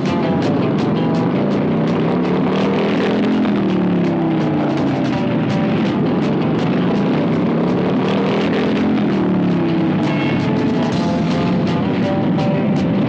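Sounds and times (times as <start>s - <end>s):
motorcycles riding past: 0.0s - 13.0s.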